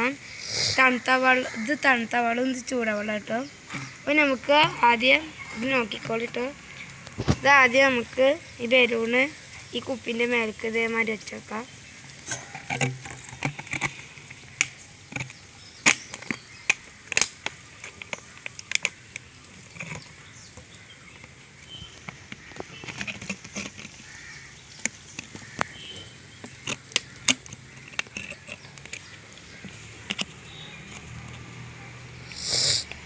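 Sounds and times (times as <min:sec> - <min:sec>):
plastic bottle crinkling: 0:05.9 - 0:31.6.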